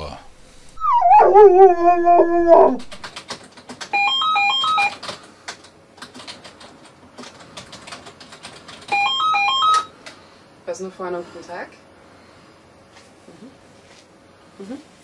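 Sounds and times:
keyboard typing clicks: 2.9 - 9.1
telephone ringing: 3.9 - 5.0, 8.9 - 10.0.

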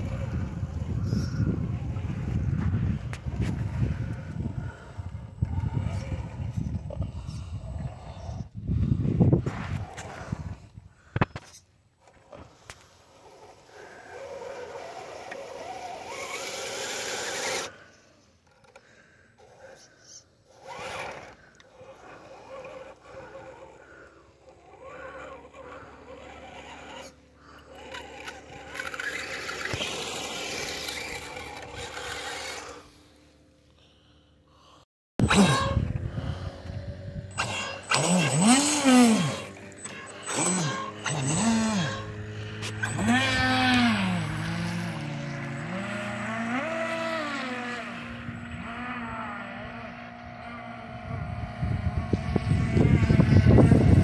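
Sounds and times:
electric motor whining: 12.0 - 19.8, 20.4 - 33.5, 35.2 - 54.0
tyres scraping on wet gravel: 24.6 - 33.0.

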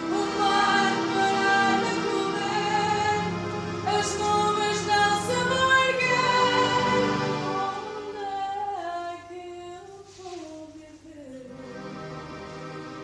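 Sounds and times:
keyboard accompaniment: 0.0 - 9.4, 11.4 - 13.0
woman singing slow song: 7.6 - 11.5.

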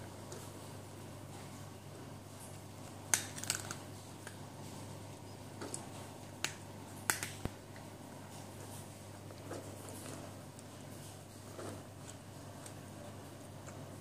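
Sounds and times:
cat crunching food: 2.3 - 4.8
cat chewing: 2.3 - 14.0.

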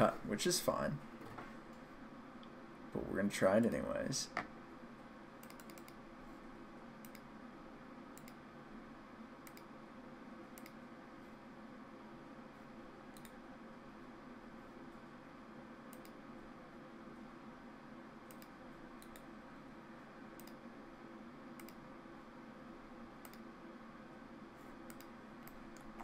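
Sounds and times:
low room hum: 0.0 - 26.0
computer mouse clicking: 5.4 - 6.0, 7.0 - 7.3, 8.2 - 8.4, 9.4 - 9.7, 10.5 - 10.8, 13.1 - 13.4, 15.9 - 16.2, 18.2 - 19.3, 20.4 - 20.6, 21.5 - 21.8, 23.2 - 23.5, 24.8 - 26.0.

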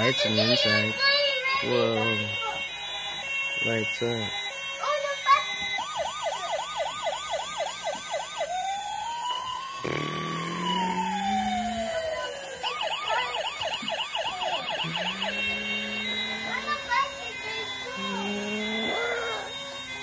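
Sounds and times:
toy siren warbling and wailing: 0.0 - 20.0
low rising tone: 9.8 - 12.3.

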